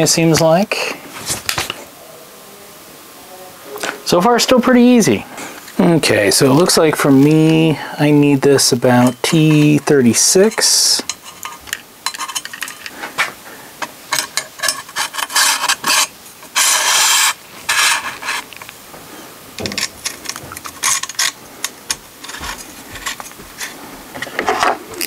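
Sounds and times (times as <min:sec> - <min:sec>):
scraping on rifle rail: 0:14.2 - 0:18.7, 0:19.6 - 0:24.8.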